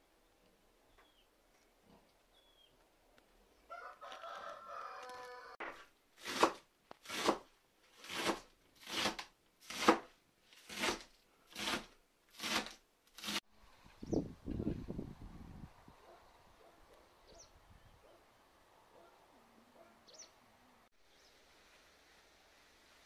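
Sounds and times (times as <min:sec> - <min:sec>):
rooster crowing: 0:03.7 - 0:05.6.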